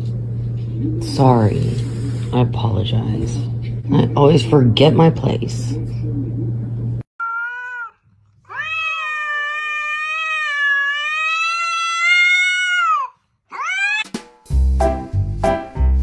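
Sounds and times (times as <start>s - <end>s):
cat yowling: 7.2s - 14.1s
upbeat music with steady beat: 14.0s - 16.0s.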